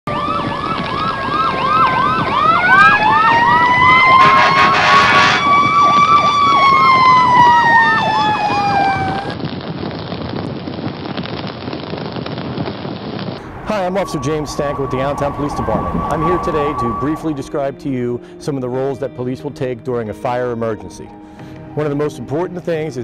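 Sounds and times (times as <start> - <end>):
siren fast yelp: 0.1 - 9.4, 13.4 - 17.6
siren wail: 0.1 - 9.4, 13.4 - 17.8
horn blast: 3.0 - 5.7, 13.4 - 18.4.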